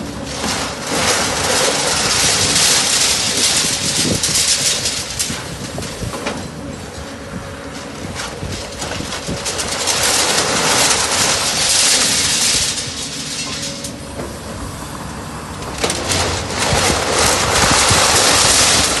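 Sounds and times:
diesel engine running: 0.0 - 19.0
hydraulic breaker hammering: 0.2 - 6.6.

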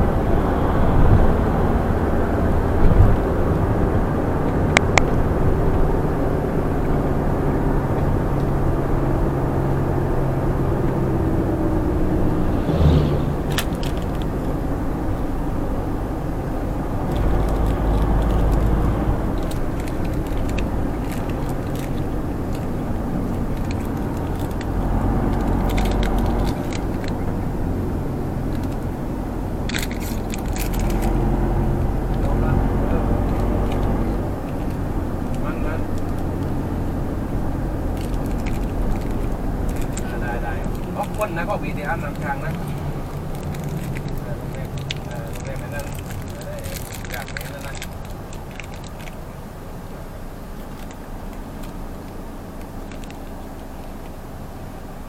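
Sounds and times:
road and wind noise: 0.0 - 55.0
vehicle engine drone: 0.0 - 55.0
clicks and rattles: 13.4 - 15.8, 16.5 - 49.4, 50.5 - 54.3.

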